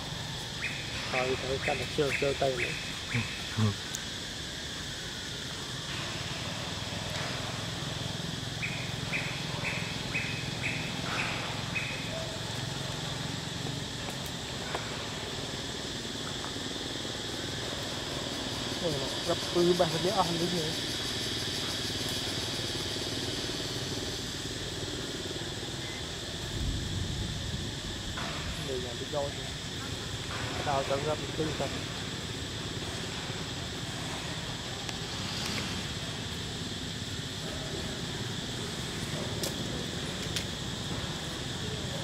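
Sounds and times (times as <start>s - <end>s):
insect chirping: 0.0s - 42.0s.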